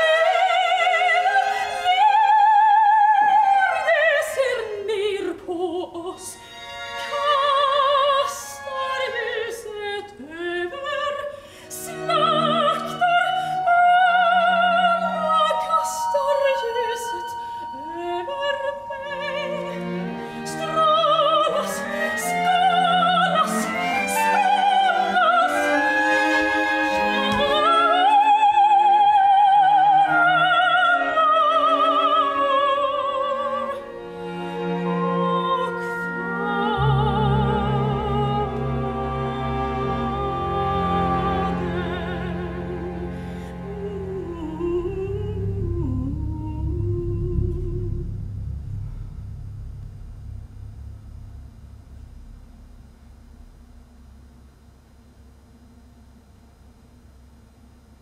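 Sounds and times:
soprano singing operatically: 0.0s - 48.0s
instruments holding low notes: 41.6s - 57.5s.

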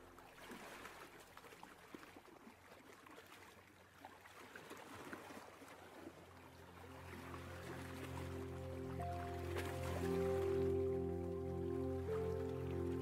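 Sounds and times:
soft ocean water wash: 0.0s - 13.0s
background music: 6.2s - 13.0s.

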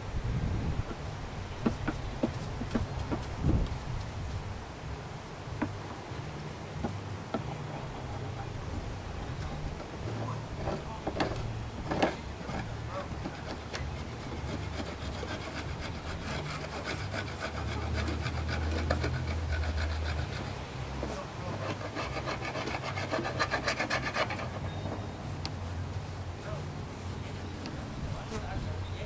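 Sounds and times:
hive tool scraping wood: 1.6s - 4.1s, 9.2s - 25.7s.

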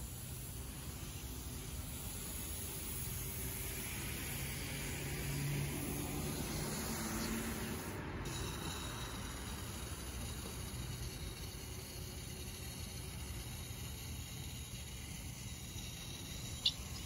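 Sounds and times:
hose spray wand hissing: 5.8s - 17.0s.

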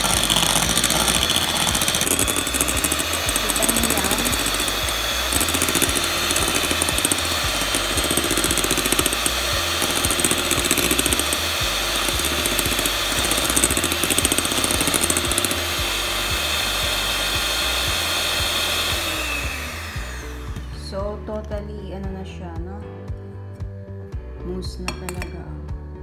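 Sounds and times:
beaters rattling: 0.0s - 15.8s
electric hand mixer whining: 0.0s - 21.1s.

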